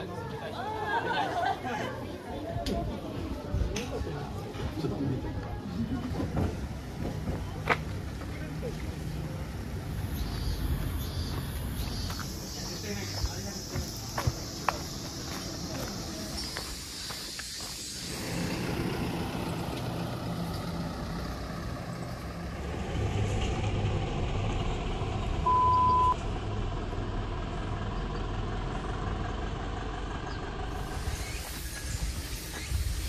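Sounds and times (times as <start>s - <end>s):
vehicle engine idling: 0.0s - 33.0s
short high-pitched beep: 25.5s - 26.2s.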